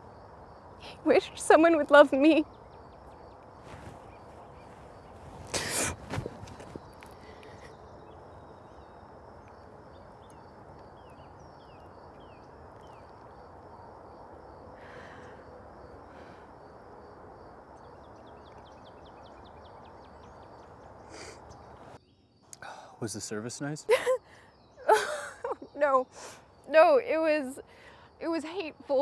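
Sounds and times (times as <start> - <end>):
background hiss: 0.0 - 29.0
birds chirping: 0.0 - 29.0.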